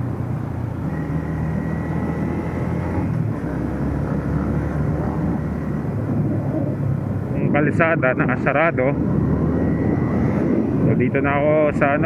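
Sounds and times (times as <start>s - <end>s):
wind and road noise: 0.0s - 12.0s
motorcycle engine running: 8.2s - 11.2s.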